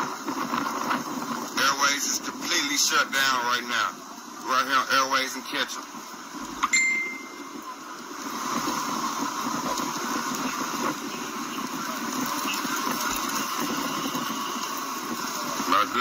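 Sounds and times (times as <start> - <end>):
outdoor street background noise: 0.0 - 16.0
short high beep: 6.6 - 7.6.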